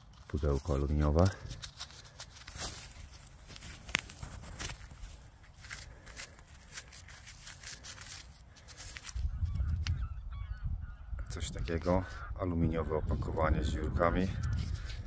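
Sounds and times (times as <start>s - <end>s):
faint bird calls: 7.6s - 13.2s.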